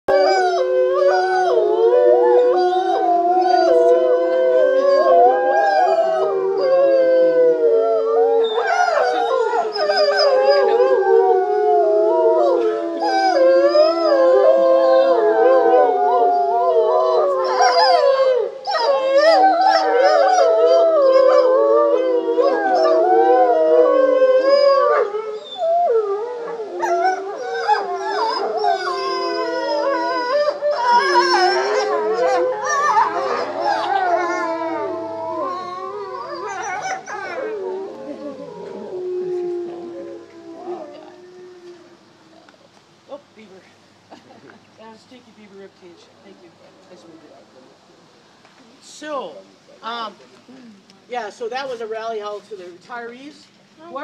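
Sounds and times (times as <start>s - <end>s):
wolves howling in chorus: 0.1s - 42.0s
choppy high wolf calls: 26.8s - 38.9s.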